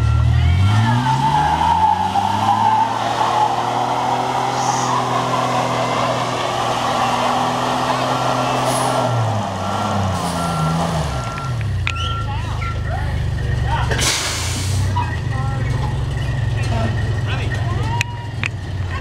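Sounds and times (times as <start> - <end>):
reversing alarm beeping: 0.0 - 5.8, 6.8 - 13.2
pickup engine revving under load: 0.0 - 11.9.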